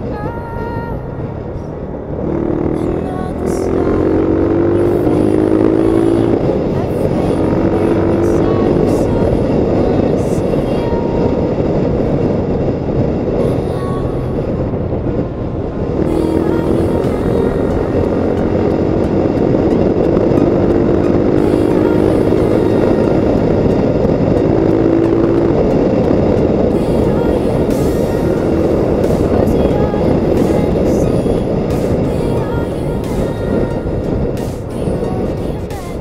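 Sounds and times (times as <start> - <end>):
motorcycle engine accelerating: 0.0 - 35.8
wind rushing over microphone: 0.0 - 36.0.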